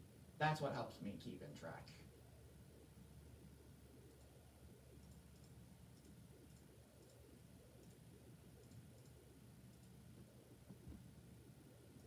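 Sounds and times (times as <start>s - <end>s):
low room hum: 0.0s - 12.0s
computer mouse clicks: 4.1s - 10.0s.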